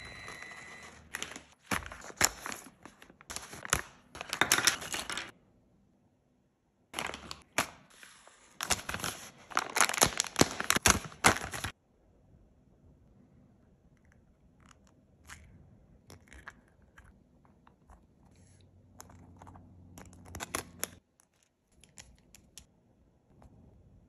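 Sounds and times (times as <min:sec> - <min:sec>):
crinkling and rustling of parts: 0:00.7 - 0:05.3.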